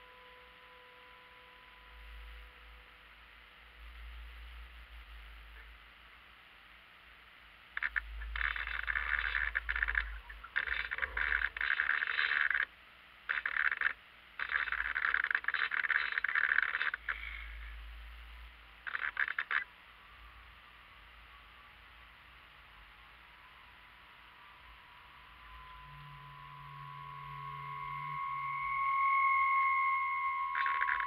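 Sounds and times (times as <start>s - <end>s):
faint hiss: 0.0s - 31.0s
servos buzzing: 7.8s - 12.7s, 13.3s - 17.7s, 18.8s - 19.7s, 24.3s - 31.0s.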